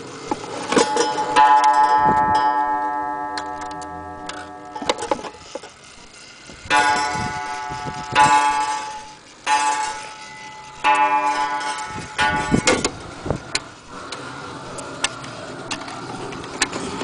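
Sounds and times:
wall clock striking: 0:00.8 - 0:05.4, 0:06.7 - 0:13.0.

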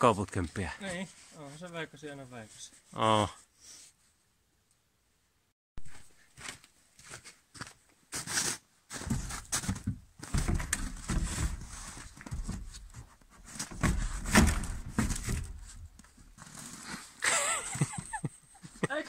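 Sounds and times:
wooden pole scraping and knocking: 0:08.9 - 0:17.2.

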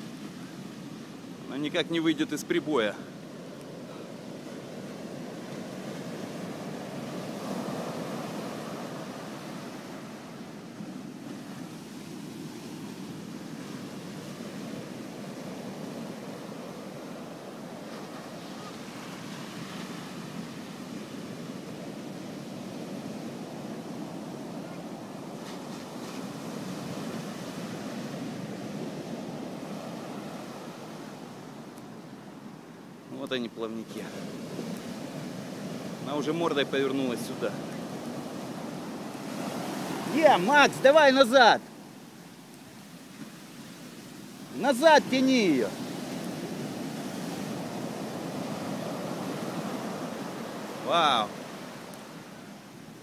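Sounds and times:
ocean surf breaking on beach: 0:00.0 - 0:53.0.

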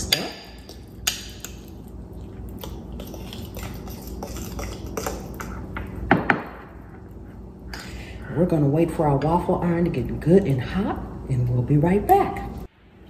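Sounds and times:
fork clinking and scraping in bowl: 0:02.6 - 0:05.8.

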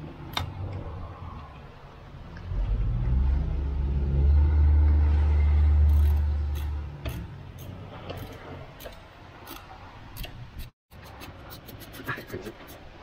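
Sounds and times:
vehicle engine rumbling: 0:00.0 - 0:10.8.

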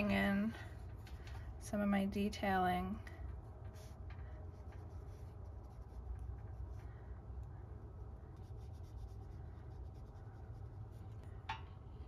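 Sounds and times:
low steady hum: 0:00.0 - 0:12.0
paintbrush scratching on paper: 0:03.6 - 0:07.0, 0:08.1 - 0:11.3.

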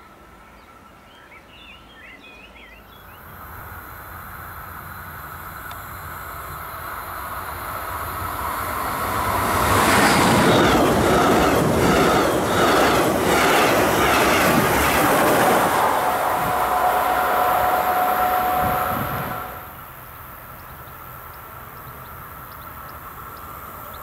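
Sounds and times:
train passing at speed: 0:02.9 - 0:24.0
locomotive whine: 0:03.2 - 0:24.0
wheels clattering over rails: 0:07.1 - 0:19.6.

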